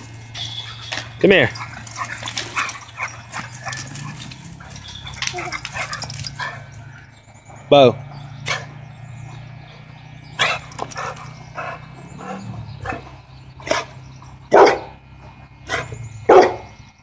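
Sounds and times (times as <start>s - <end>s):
dog barking: 0.6s - 7.0s, 8.4s - 8.8s, 10.4s - 15.0s, 15.7s - 16.7s.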